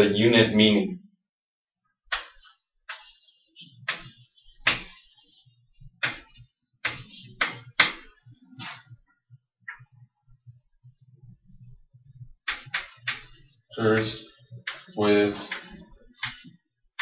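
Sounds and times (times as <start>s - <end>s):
chalk tapping and scratching: 2.1s - 8.9s, 12.4s - 17.0s.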